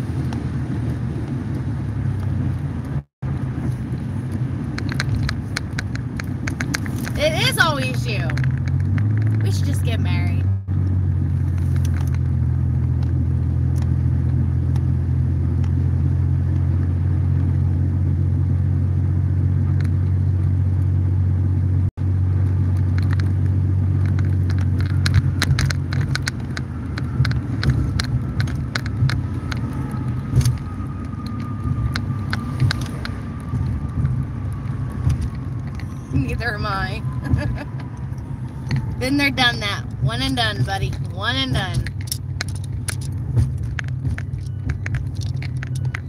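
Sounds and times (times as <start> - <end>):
car engine and road rumble: 0.0 - 46.0
clicks and ticks: 3.7 - 10.2, 22.4 - 46.0.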